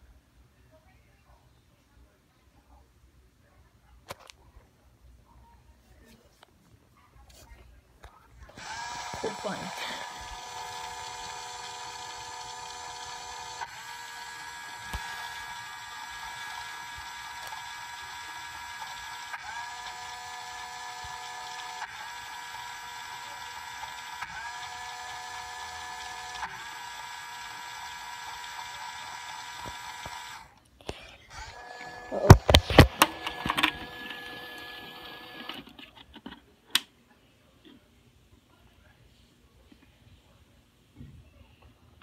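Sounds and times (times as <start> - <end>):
small gear motor whirring: 8.5 - 30.5, 31.3 - 35.6.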